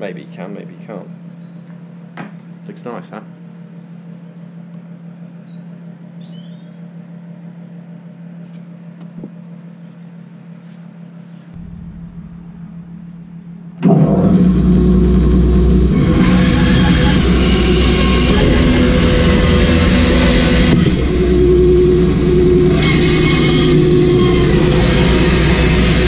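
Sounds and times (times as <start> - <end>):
faint steady hum: 0.0 - 26.0
bandsaw running: 13.8 - 26.0.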